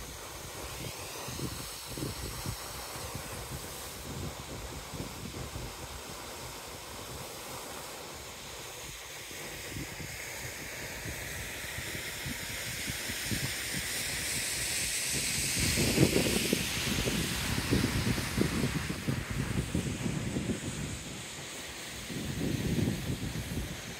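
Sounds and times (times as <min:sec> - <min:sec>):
wind buffeting microphone: 0:14.8 - 0:21.4, 0:22.0 - 0:23.9.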